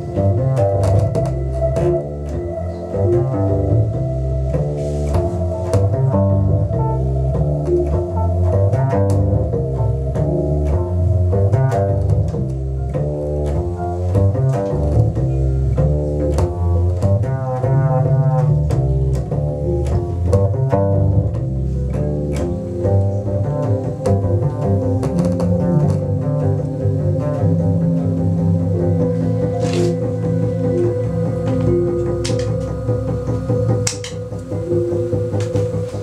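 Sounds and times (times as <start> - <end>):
steady held tone: 0.0 - 14.2, 21.1 - 36.0
plucked double bass: 0.0 - 36.0.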